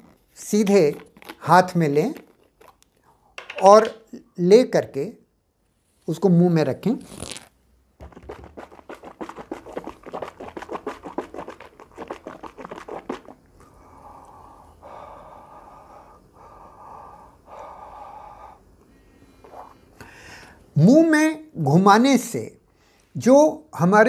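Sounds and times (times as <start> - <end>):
water swishing in mouth: 8.0 - 13.5
man breathing: 13.6 - 20.7.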